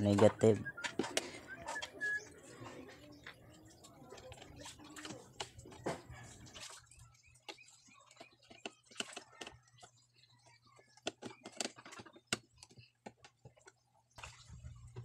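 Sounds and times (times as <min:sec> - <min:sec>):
clicks and taps of handling plastic: 0:10.8 - 0:13.8.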